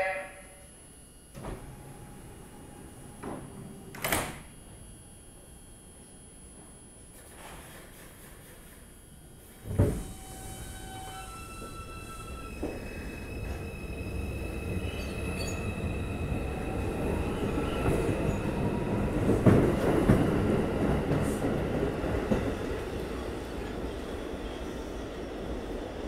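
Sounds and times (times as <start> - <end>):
subway train pulling away: 1.3 - 4.8, 7.2 - 26.0
wheels squealing on rails: 10.0 - 18.6.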